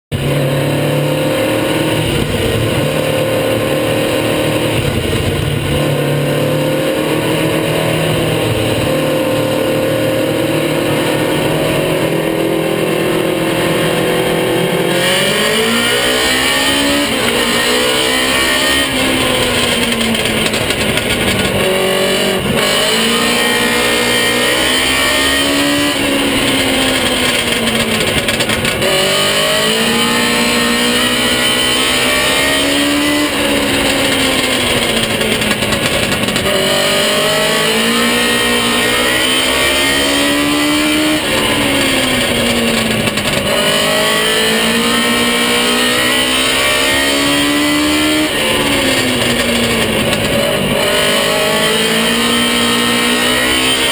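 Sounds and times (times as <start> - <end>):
race car engine revving: 0.1 - 53.9.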